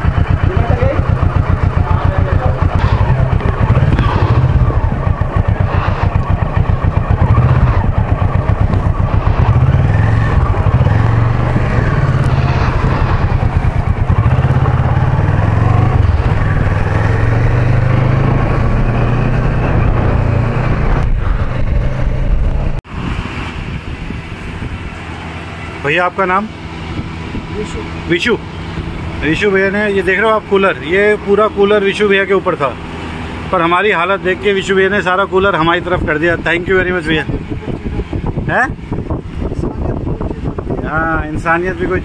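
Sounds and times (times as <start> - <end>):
motorcycle engine running: 0.0 - 22.8.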